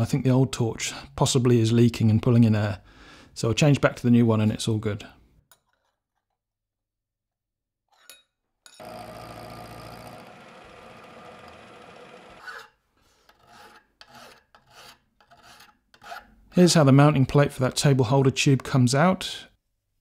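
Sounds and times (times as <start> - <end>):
milling machine running: 8.8 - 12.4
hand file scraping steel: 12.4 - 16.4.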